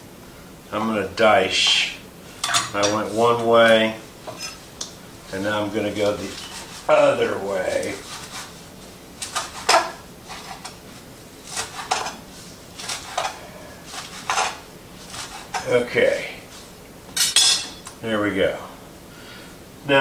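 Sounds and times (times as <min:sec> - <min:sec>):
knife chopping kale: 0:06.0 - 0:08.6, 0:09.2 - 0:10.8, 0:11.4 - 0:12.2, 0:12.8 - 0:15.7.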